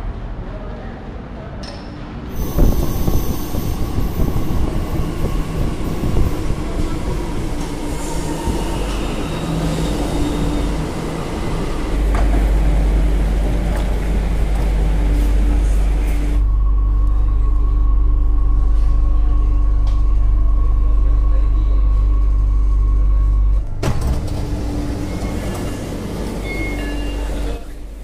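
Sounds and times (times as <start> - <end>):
train rumble: 0.0 - 28.0
high wheel squeal: 24.9 - 27.8.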